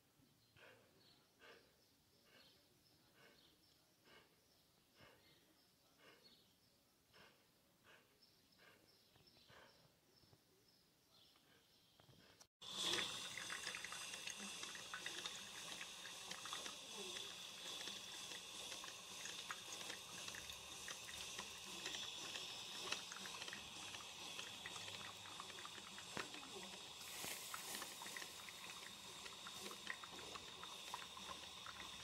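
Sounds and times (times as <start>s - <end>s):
coffee maker hissing and bubbling: 12.6s - 32.0s.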